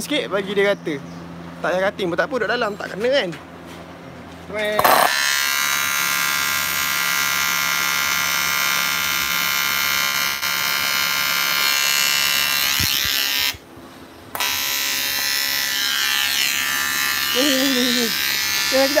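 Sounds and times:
welding arc buzzing: 4.8s - 13.7s, 14.3s - 19.0s.

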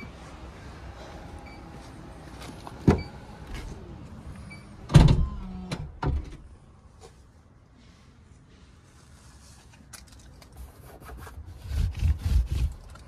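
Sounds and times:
car doors shutting with thuds: 4.8s - 6.4s.

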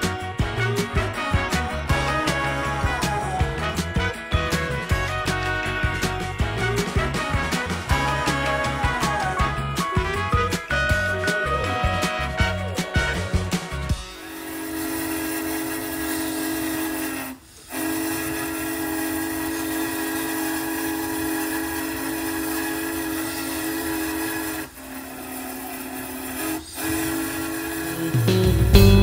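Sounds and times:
steam locomotive whistle: 0.0s - 28.8s
steam hiss: 14.1s - 28.6s.

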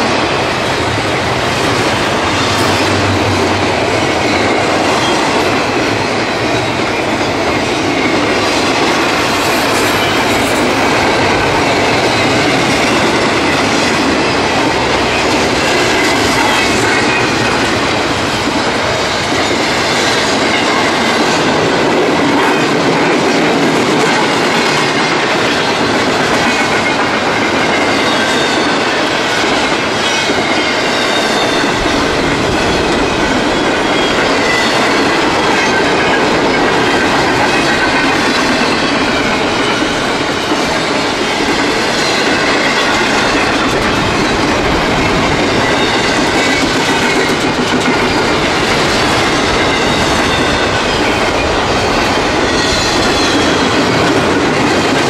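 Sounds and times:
freight train rumbling past: 0.0s - 55.0s
steel wheel squeal: 40.9s - 47.4s.

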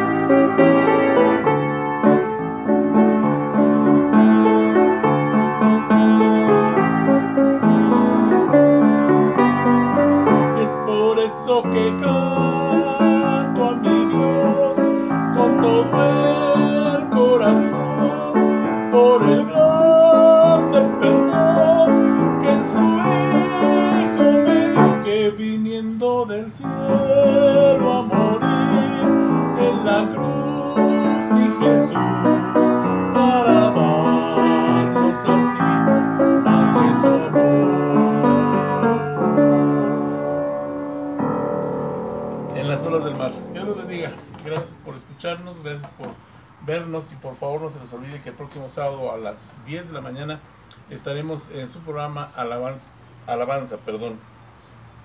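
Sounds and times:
wavering melody with vibrato: 0.0s - 25.3s, 26.5s - 44.4s
piano playing: 0.0s - 45.8s.

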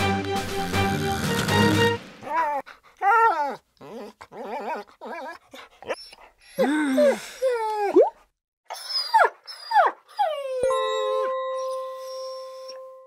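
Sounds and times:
dogs whining and yelping: 2.2s - 13.0s
steady chime-like tone: 10.6s - 13.0s.

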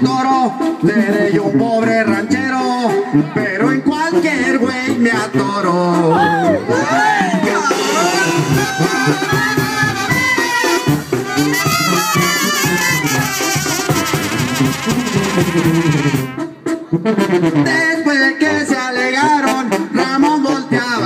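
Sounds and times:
drums: 0.0s - 21.0s
clarinets and trumpets: 4.6s - 21.0s.

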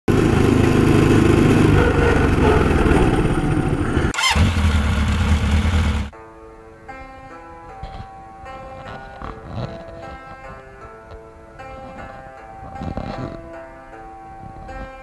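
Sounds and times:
mini bike engine running: 0.1s - 6.1s.

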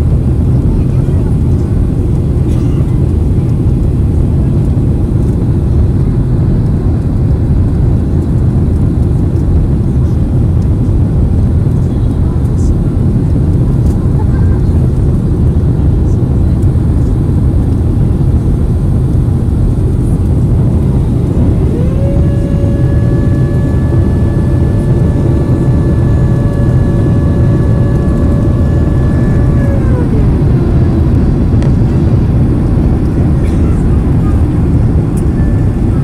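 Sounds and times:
airliner cabin rumble: 0.0s - 36.0s
mechanical whine: 0.0s - 36.0s.

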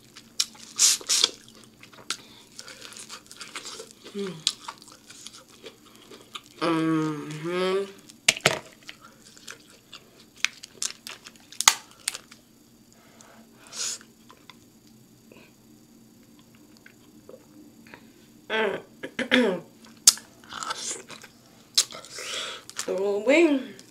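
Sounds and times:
soft chewing: 0.0s - 6.6s, 8.0s - 13.3s, 19.8s - 22.9s
crab shells cracking: 0.1s - 6.6s, 8.0s - 12.4s
woman humming with mouth full: 4.1s - 4.5s, 6.6s - 8.0s, 18.5s - 19.7s.

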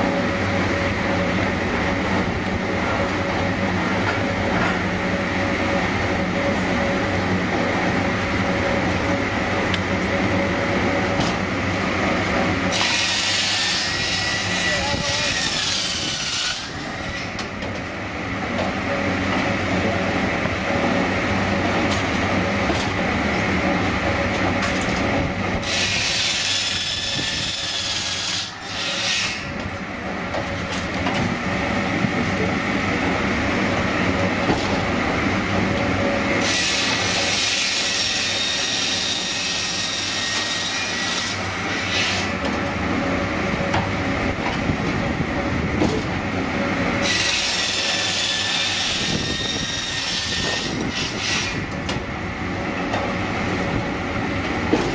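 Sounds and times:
log sawing machine droning: 0.0s - 54.9s
saw cutting through logs: 12.6s - 17.4s, 25.6s - 29.5s, 36.4s - 42.4s, 47.0s - 51.7s.

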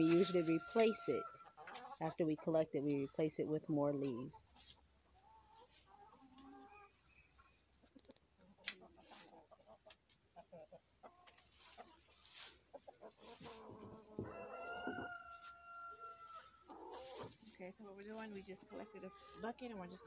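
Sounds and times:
shovel scraping and scooping: 0.0s - 0.8s
hens clucking: 0.0s - 20.0s.

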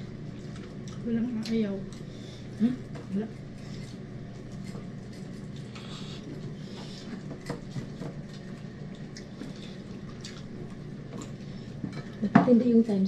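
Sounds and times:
chewing smacks: 0.3s - 2.1s, 3.8s - 11.5s.

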